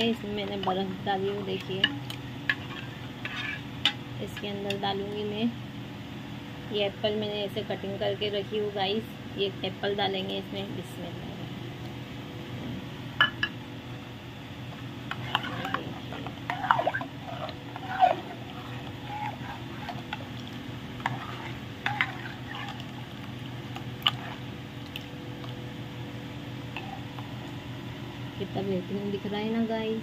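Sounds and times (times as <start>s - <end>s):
steady low hum: 0.0s - 30.0s
liquid sloshing: 15.1s - 25.6s.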